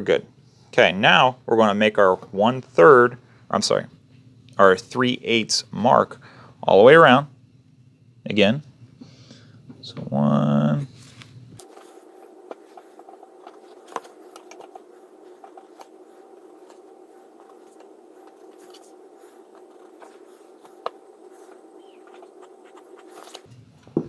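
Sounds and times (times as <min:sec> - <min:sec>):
pencil scratching on paper: 0:11.6 - 0:23.5.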